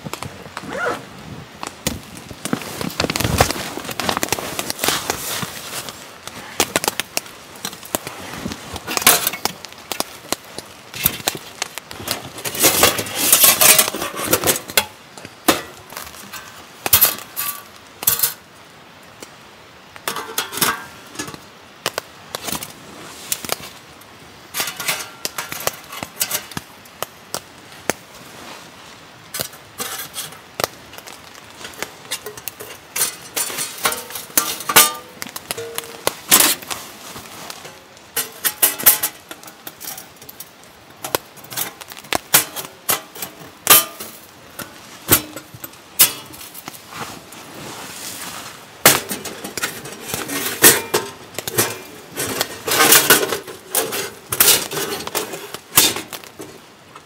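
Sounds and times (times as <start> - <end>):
metal panels clinking: 31.6 - 36.8, 37.5 - 40.4, 41.0 - 46.6, 48.8 - 56.6.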